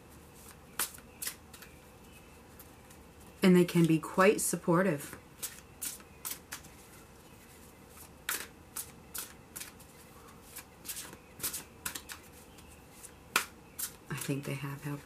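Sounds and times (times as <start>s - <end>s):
cards being shuffled: 5.4s - 14.4s.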